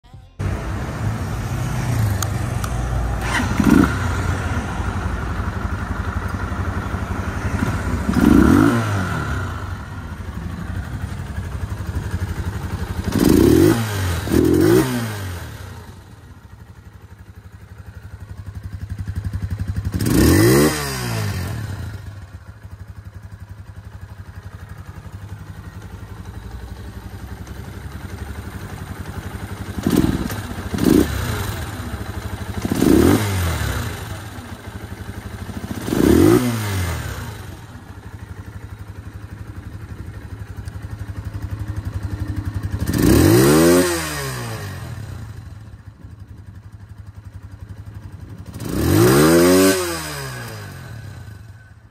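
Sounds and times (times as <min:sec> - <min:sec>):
motorcycle engine idling and revving: 0:00.0 - 0:51.9.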